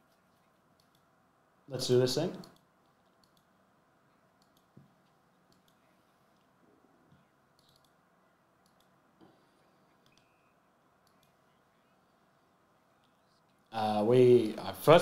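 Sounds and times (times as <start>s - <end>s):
faint clicks: 0.7s - 1.1s, 2.3s - 3.5s, 4.4s - 6.5s, 7.1s - 8.0s, 8.6s - 10.4s, 11.0s - 11.5s.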